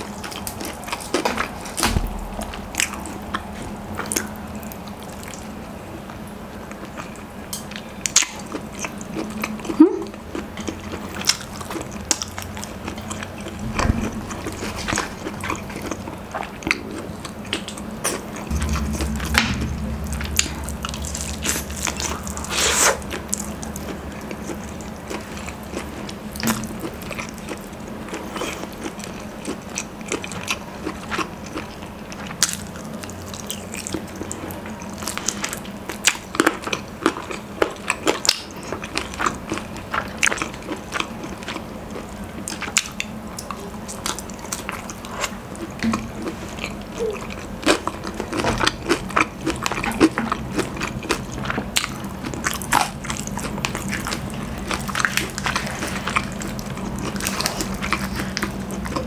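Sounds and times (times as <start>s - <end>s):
fried chicken crunching: 21.7s - 59.0s.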